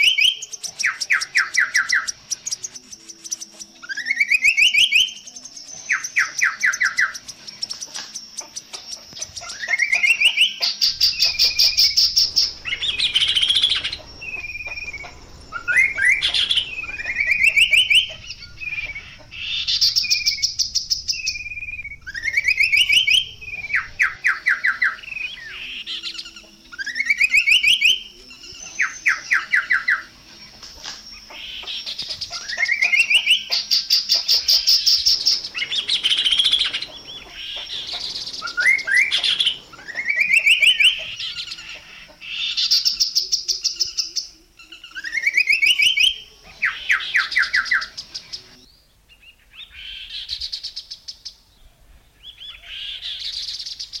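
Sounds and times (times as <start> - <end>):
harsh rattling bird notes: 0.0 - 43.7
bird song with upward pulsed notes: 0.0 - 54.0.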